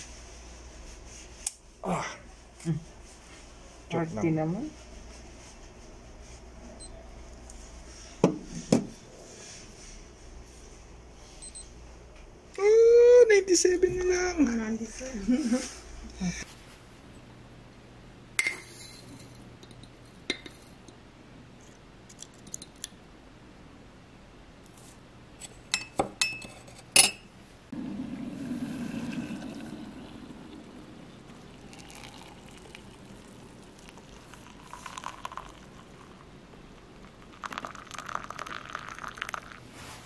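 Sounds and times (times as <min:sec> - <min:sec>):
water pouring into mug: 0:27.8 - 0:36.3, 0:36.9 - 0:39.6.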